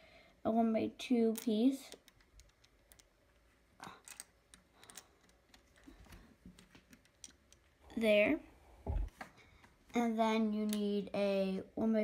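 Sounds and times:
plastic pieces clicking and tapping: 0:01.3 - 0:07.8.

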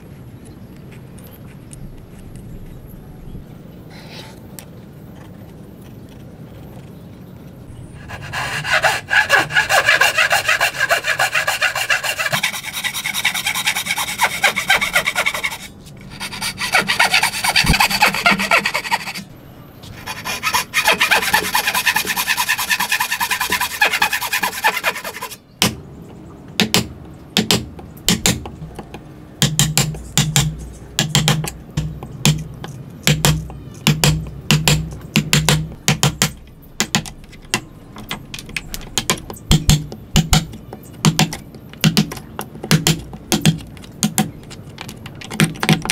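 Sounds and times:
hand saw cutting wood: 0:08.0 - 0:19.2, 0:20.0 - 0:25.4
mallet striking a chisel: 0:26.6 - 0:28.5, 0:29.4 - 0:37.6.

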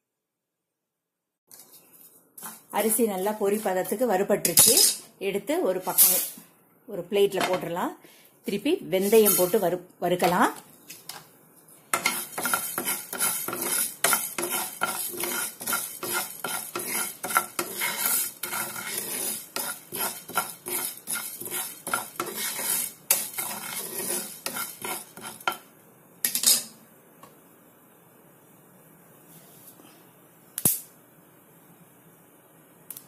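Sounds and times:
spatula stirring seeds in a pan: 0:02.4 - 0:05.0, 0:09.0 - 0:10.6, 0:11.8 - 0:25.7.

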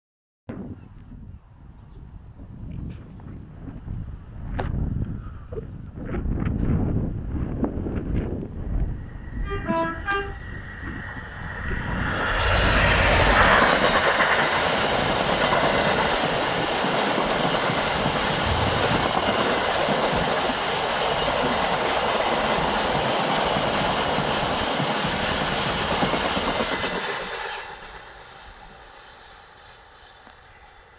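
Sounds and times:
train wheels rumbling on rail: 0:02.5 - 0:30.9
diesel locomotive engine passing: 0:05.9 - 0:30.9
two-tone locomotive horn: 0:09.3 - 0:11.0.

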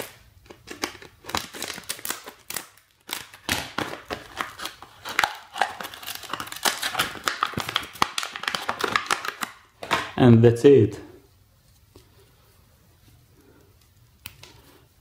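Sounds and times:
scissors cutting plastic packaging: 0:00.0 - 0:09.6
plastic packaging crinkling: 0:00.0 - 0:10.1.

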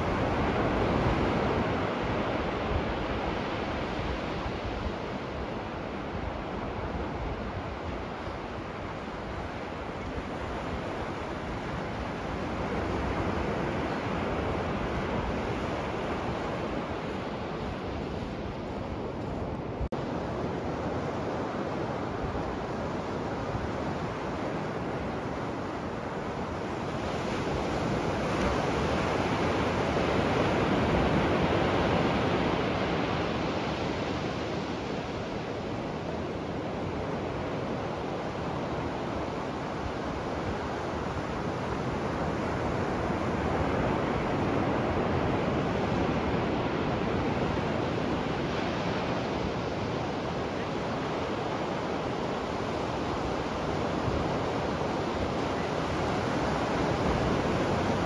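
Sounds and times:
surf breaking on beach: 0:00.0 - 0:58.0.

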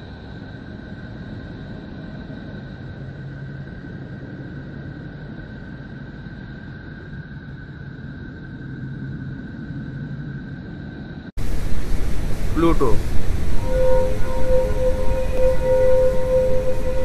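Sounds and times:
low rumbling drone: 0:00.0 - 0:17.0
faint high steady tones: 0:11.4 - 0:17.0.

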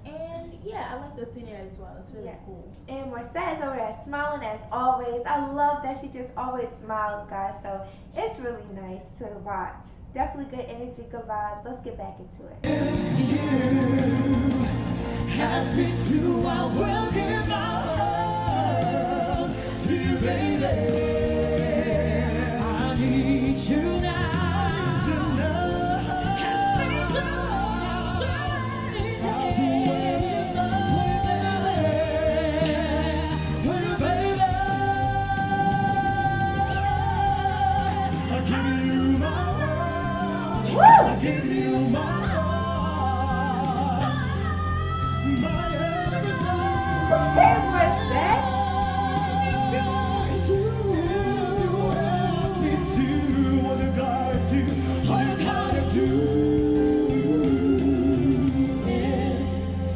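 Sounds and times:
woman singing with vibrato: 0:12.6 - 0:53.6
instrumental backing: 0:12.6 - 0:59.9
slow band accompaniment: 0:12.6 - 0:59.9.

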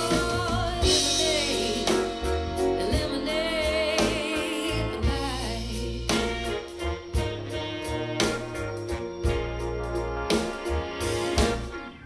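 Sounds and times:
song with singing voice: 0:00.0 - 0:08.5
drum beat: 0:00.0 - 0:11.7
bass: 0:00.0 - 0:12.0.

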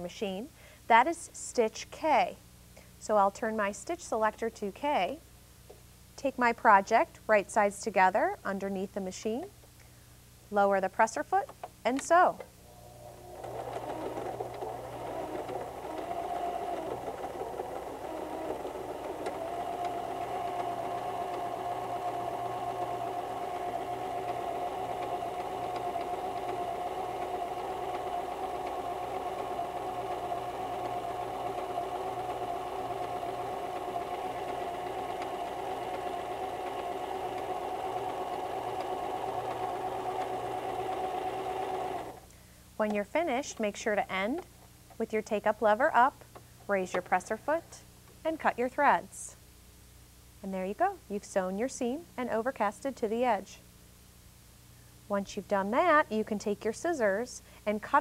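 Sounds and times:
electric sewing machine running: 0:12.8 - 0:42.3.

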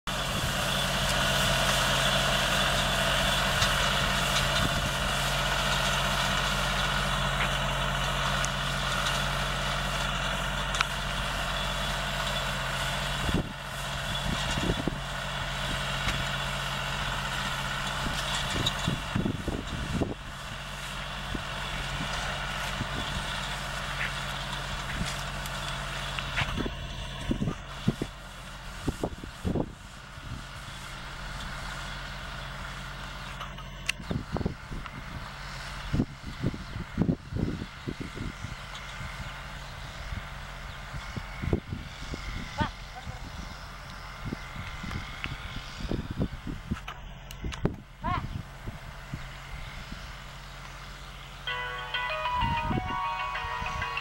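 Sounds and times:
tractor engine running: 0:00.1 - 0:54.0.

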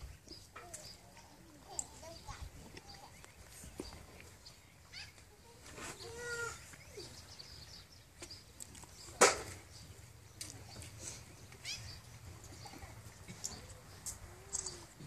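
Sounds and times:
bird chirps: 0:00.0 - 0:13.8
sharp loud snap: 0:09.2 - 0:09.6.

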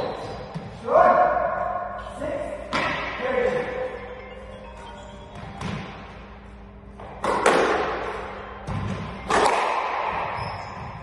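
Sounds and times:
squash ball hits echoing: 0:02.6 - 0:03.6, 0:05.4 - 0:06.2, 0:07.0 - 0:11.0.

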